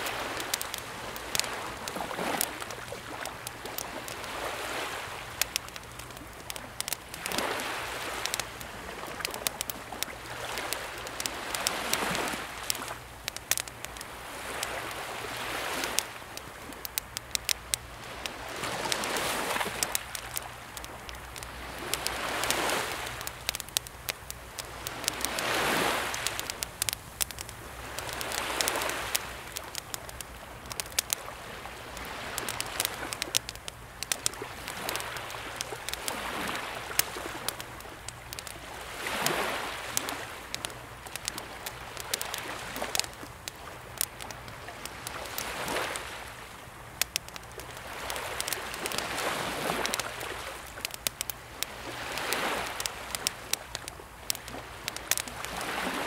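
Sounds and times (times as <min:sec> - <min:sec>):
campfire crackling and popping: 0:00.0 - 0:56.0
small sea waves washing in: 0:00.0 - 0:56.0.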